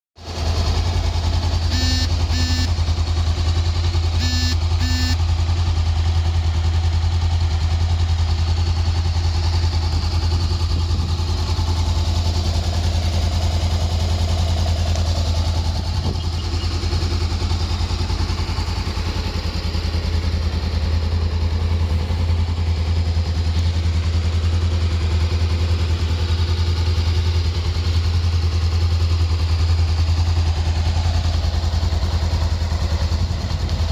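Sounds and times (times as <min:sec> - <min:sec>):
motorcycle engine idling: 0:00.2 - 0:33.9
short high beeps: 0:01.7 - 0:02.7, 0:04.2 - 0:05.2.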